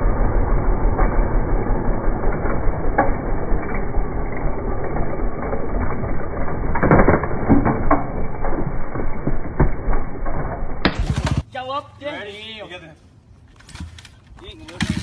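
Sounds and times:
steady low noise: 0.0 - 11.5.

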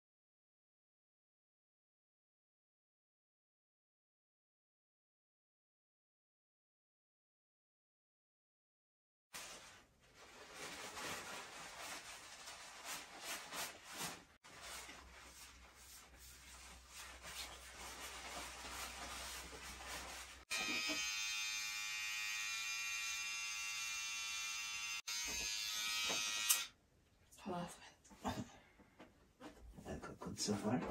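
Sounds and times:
electric hair clippers buzzing: 20.5 - 26.8.

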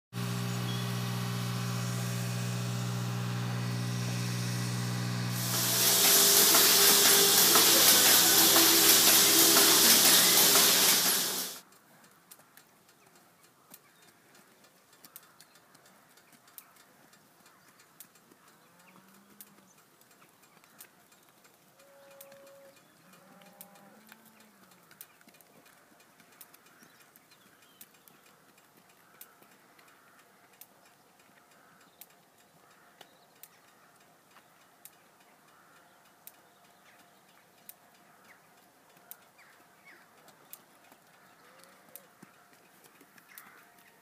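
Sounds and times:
loud even hiss: 0.2 - 11.6
milking machinery humming: 0.2 - 11.6
faint clicks: 11.6 - 44.0.

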